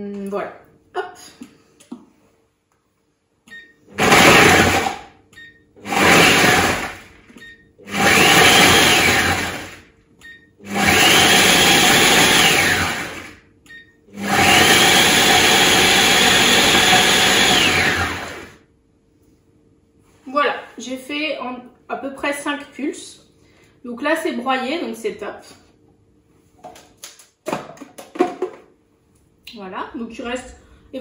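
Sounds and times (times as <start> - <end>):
food processor motor whine: 4.0 - 5.1, 5.8 - 7.2, 7.9 - 9.8, 10.6 - 13.4, 14.1 - 18.6.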